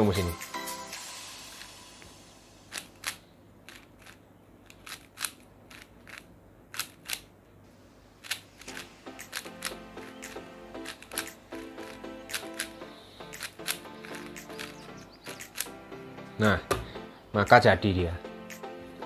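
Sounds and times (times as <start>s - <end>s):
puzzle cube clicking as turned: 2.7s - 7.3s, 8.2s - 15.7s.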